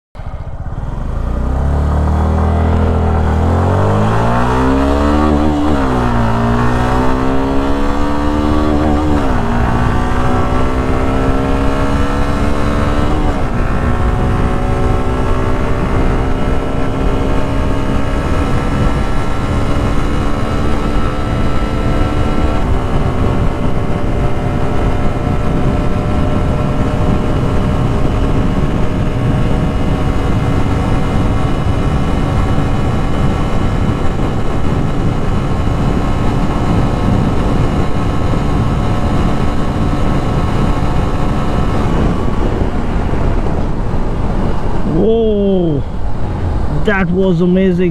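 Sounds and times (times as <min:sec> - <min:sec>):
motorcycle engine accelerating: 0:00.2 - 0:47.9
wind rush on microphone: 0:00.2 - 0:47.9.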